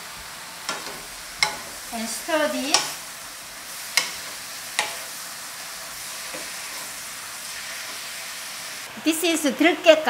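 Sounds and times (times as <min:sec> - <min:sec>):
mushrooms sizzling in pan: 0:00.0 - 0:10.0
spatula knocking pan: 0:00.7 - 0:03.1, 0:03.7 - 0:05.2, 0:06.2 - 0:07.0.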